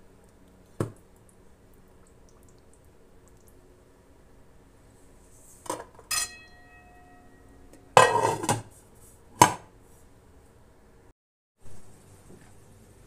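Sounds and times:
pot lid clinking and clattering: 5.7s - 7.2s, 7.9s - 8.7s.

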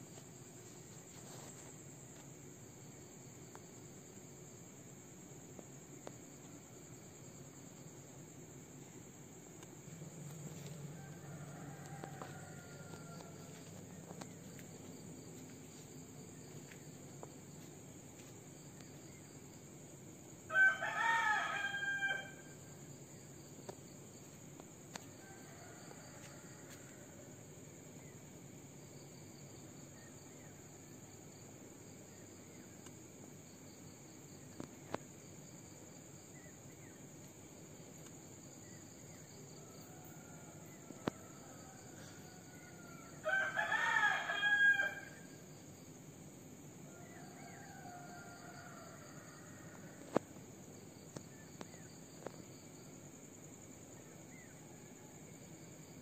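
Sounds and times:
distant rooster crowing: 10.2s - 15.6s, 20.5s - 22.6s, 24.9s - 27.4s, 39.2s - 45.4s, 46.8s - 50.3s
rooster crowing: 10.6s - 14.4s, 20.5s - 22.6s, 25.2s - 27.3s, 39.5s - 45.4s, 46.9s - 50.2s.

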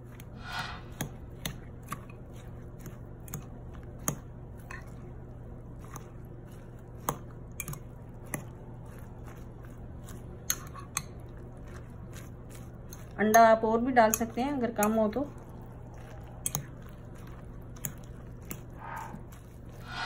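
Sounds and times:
stuffing squelching: 0.1s - 20.0s.

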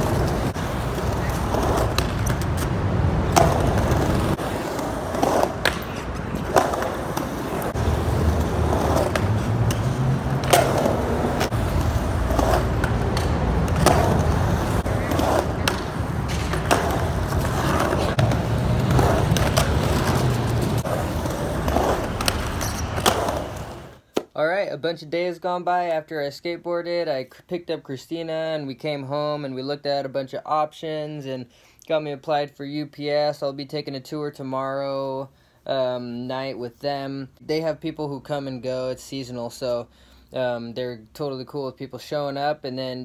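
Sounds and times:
skateboard wheels rumbling: 0.0s - 24.0s
skateboard clacks: 0.0s - 24.3s.

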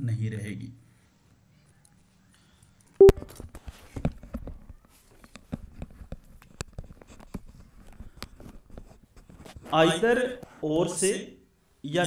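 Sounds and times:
small clicks taps and rustles: 3.1s - 9.8s.

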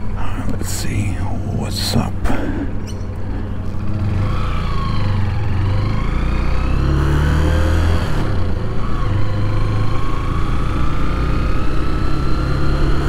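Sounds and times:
motorcycle engine accelerating: 2.7s - 13.0s.

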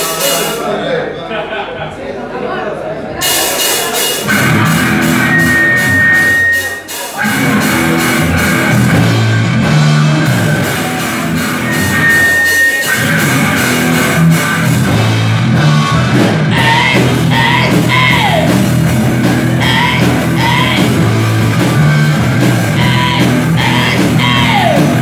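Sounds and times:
live rock band playing: 0.0s - 0.6s, 3.2s - 25.0s
drums: 0.0s - 0.7s, 3.1s - 25.0s
electric guitar: 4.2s - 25.0s
person singing over band: 16.5s - 18.6s, 19.6s - 21.1s, 22.7s - 25.0s.

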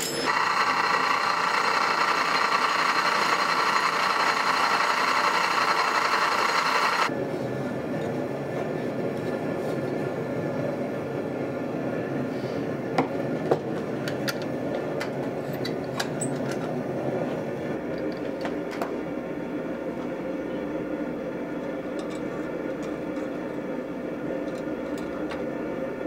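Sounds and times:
metal clinks and clanks: 0.0s - 0.3s.

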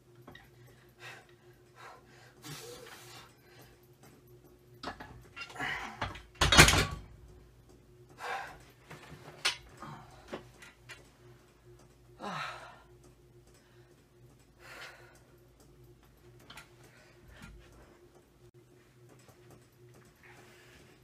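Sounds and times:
heavy breathing: 8.1s - 8.8s.

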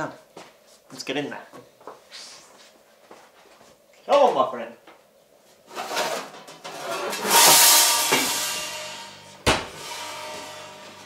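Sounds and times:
rush of noise from oven: 5.7s - 11.0s.

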